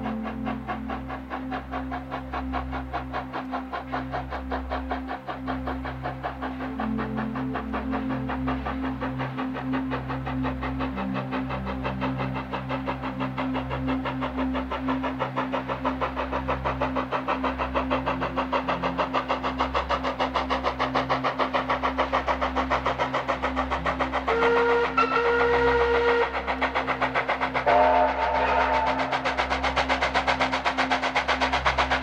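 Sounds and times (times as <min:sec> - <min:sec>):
steam locomotive exhaust chuffs: 0:00.0 - 0:32.0
steam whistle blast: 0:24.3 - 0:26.5, 0:27.6 - 0:29.2.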